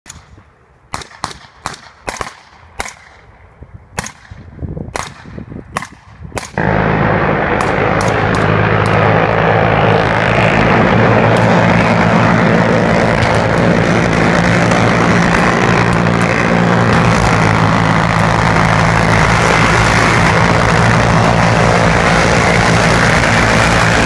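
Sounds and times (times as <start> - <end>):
rifle shots: 0.9 - 3.2, 4.0 - 10.5.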